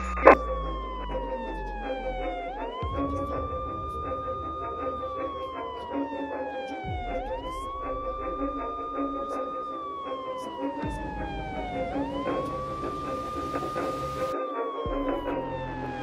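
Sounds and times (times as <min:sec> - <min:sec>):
siren wailing: 0:00.0 - 0:16.0
steady low drone: 0:00.0 - 0:16.0.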